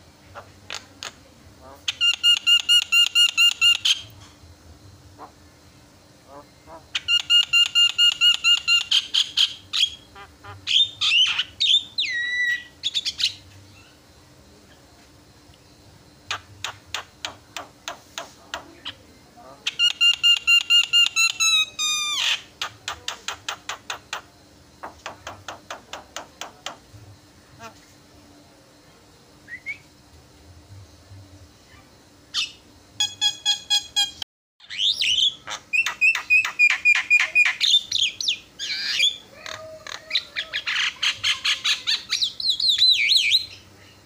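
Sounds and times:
myna bird singing: 0.0s - 4.2s, 5.0s - 14.9s, 15.5s - 27.9s, 31.0s - 44.0s
rising whistled bird chirp: 10.7s - 14.0s, 29.4s - 30.0s, 31.7s - 39.2s.

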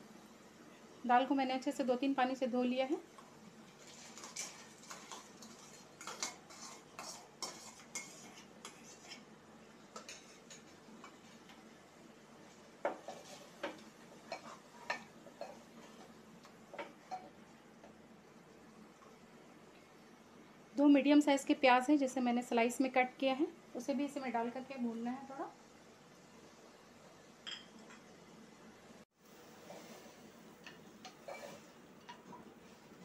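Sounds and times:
wooden spatula stirring lentils: 3.7s - 9.3s, 12.9s - 15.1s, 29.3s - 33.0s
spatula knocking and scraping pot: 3.8s - 9.2s, 9.9s - 11.2s, 12.8s - 16.1s, 29.6s - 32.5s.

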